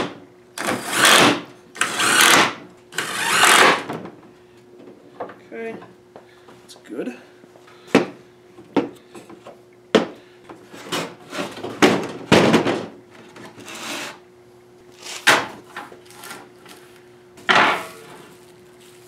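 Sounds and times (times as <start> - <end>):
wooden boards scraping: 13.5 - 14.2.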